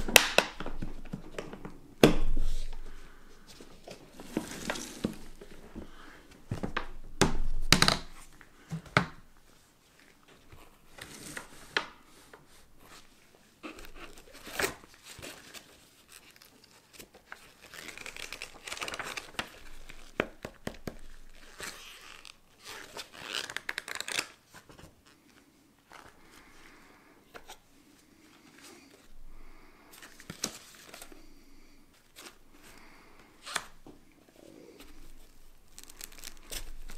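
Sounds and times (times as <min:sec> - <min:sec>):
paper rustling and crinkling: 0:02.3 - 0:06.9, 0:09.9 - 0:26.6, 0:29.9 - 0:36.9.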